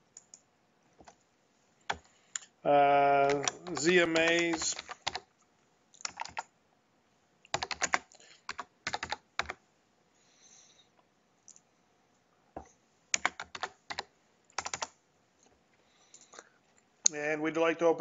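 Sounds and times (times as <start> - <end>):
computer keyboard typing: 1.9 - 2.1, 3.2 - 5.3, 6.0 - 6.5, 7.5 - 9.6, 13.2 - 14.9.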